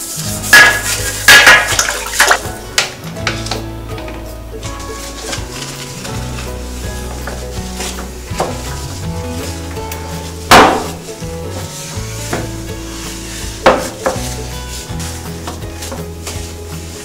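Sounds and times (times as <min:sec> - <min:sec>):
toilet seat being wiped: 0:00.0 - 0:02.6, 0:04.2 - 0:17.0
background music with held chords: 0:00.0 - 0:17.0
toilet seat knocking: 0:10.5 - 0:11.0.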